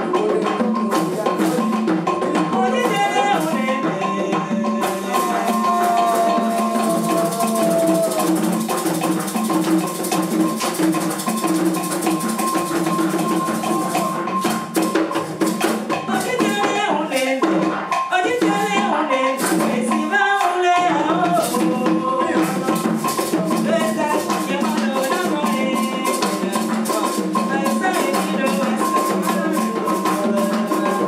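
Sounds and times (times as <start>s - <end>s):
woman singing lead: 0.0s - 8.7s, 16.0s - 31.0s
busy percussion rhythm: 0.0s - 31.0s.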